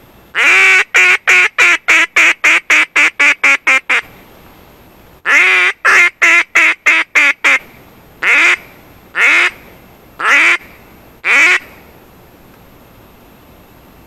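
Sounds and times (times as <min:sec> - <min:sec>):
duck call quacking: 0:00.4 - 0:04.1, 0:05.3 - 0:07.6, 0:08.2 - 0:09.6, 0:10.2 - 0:11.8.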